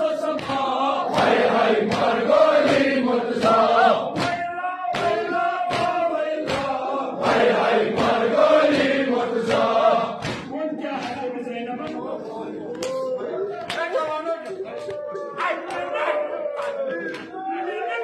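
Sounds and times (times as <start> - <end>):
crowd of men chanting: 0.0 - 18.0
hands slapping chests: 0.3 - 12.1, 12.7 - 17.4.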